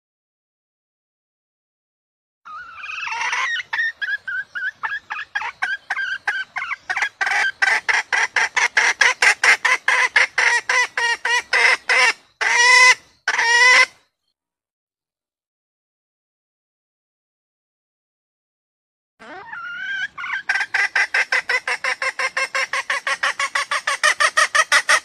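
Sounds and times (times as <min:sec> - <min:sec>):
hen clucking: 0:02.5 - 0:13.9, 0:19.2 - 0:25.0.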